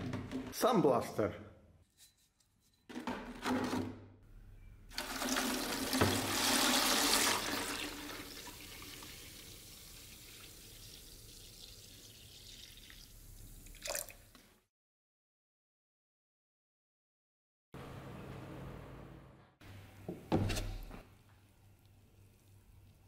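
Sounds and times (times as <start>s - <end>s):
liquid pouring into plastic bottle: 4.9s - 14.4s.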